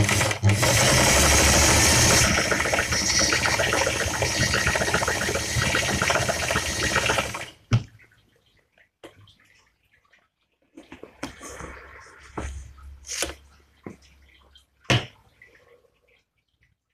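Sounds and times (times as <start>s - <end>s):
sewing machine clatter: 0.0s - 7.5s.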